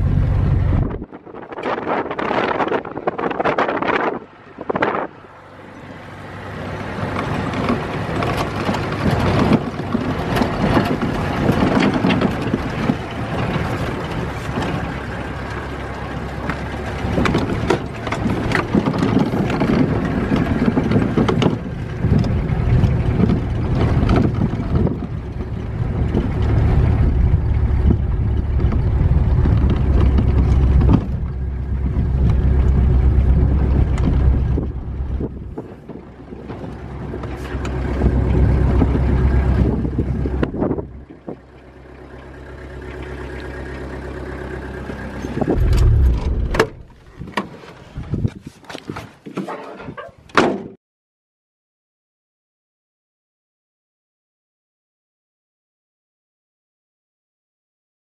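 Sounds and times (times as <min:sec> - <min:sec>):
low rumble: 0:00.0 - 0:01.2, 0:21.6 - 0:41.6, 0:44.9 - 0:47.3
truck road noise on gravel: 0:00.0 - 0:49.8.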